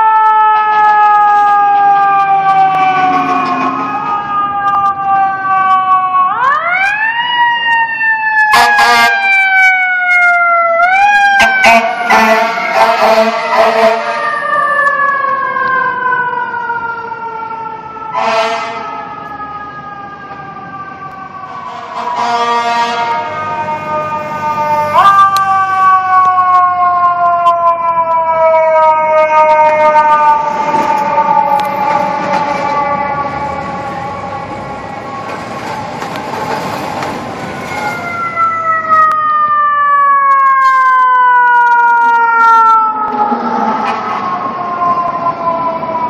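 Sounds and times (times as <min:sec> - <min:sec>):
fire engine siren wailing: 0:00.0 - 0:46.0
short horn blast: 0:11.4 - 0:14.2, 0:18.2 - 0:18.8, 0:21.7 - 0:23.4.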